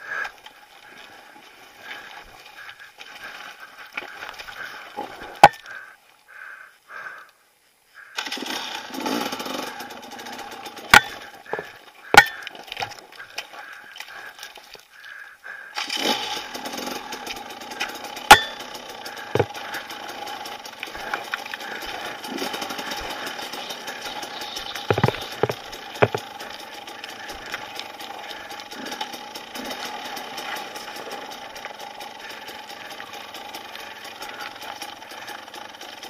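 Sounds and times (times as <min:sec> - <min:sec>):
dirt bike engine at low revs: 0:00.0 - 0:05.9, 0:08.2 - 0:14.4, 0:15.7 - 0:36.0
bike striking rock: 0:05.3 - 0:05.6, 0:10.8 - 0:12.7, 0:16.9 - 0:28.0.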